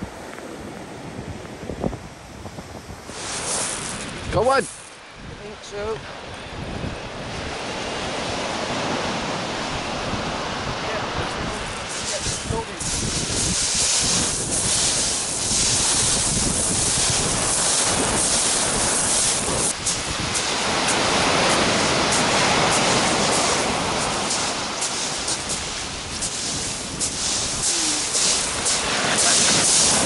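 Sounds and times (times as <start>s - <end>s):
wind on microphone: 0.0s - 30.0s
surf breaking on shingle: 11.7s - 30.0s.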